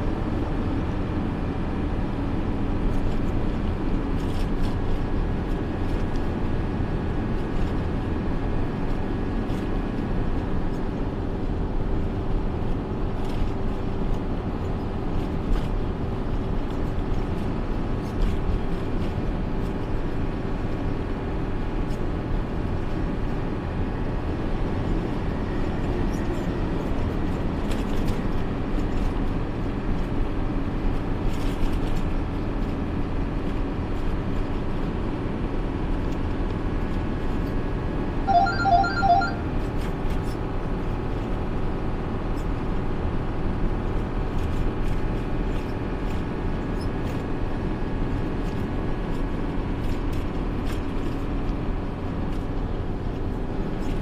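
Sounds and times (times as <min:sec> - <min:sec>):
truck engine and tyres droning: 0:00.0 - 0:54.0
quick electronic beeps: 0:38.3 - 0:39.4.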